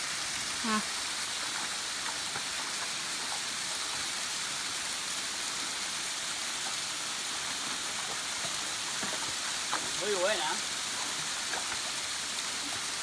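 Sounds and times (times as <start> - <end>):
small waterfall splashing on rocks: 0.0 - 13.0.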